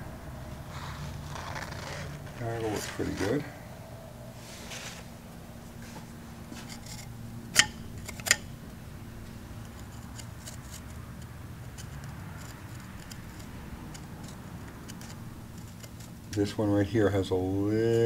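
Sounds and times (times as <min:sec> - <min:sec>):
steady low hum: 0:00.0 - 0:18.0
screwdriver scraping metal: 0:06.6 - 0:08.5, 0:09.6 - 0:16.5
sharp metallic clicks: 0:06.8 - 0:08.6.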